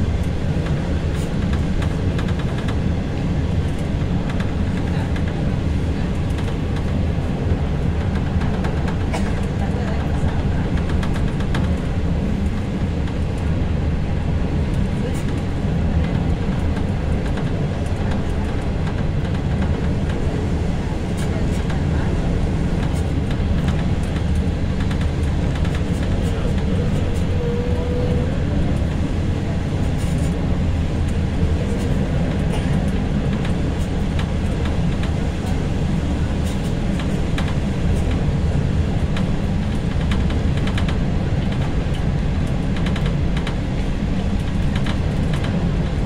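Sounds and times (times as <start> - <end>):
train wheels rumbling on rails: 0.0 - 46.0.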